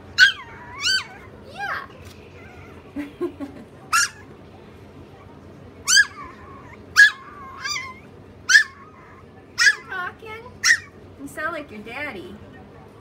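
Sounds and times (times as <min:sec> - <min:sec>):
small dog yipping: 0:00.2 - 0:01.4, 0:03.9 - 0:04.3, 0:05.2 - 0:10.0, 0:10.6 - 0:11.0
dog warbling whine: 0:00.2 - 0:01.5, 0:05.8 - 0:10.0.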